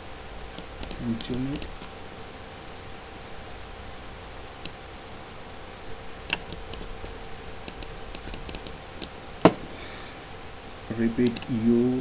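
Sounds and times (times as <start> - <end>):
faint steady hum: 0.0 - 12.0
mouse and keyboard clicks: 0.5 - 1.9, 6.3 - 9.2
louder knock: 9.4 - 9.8.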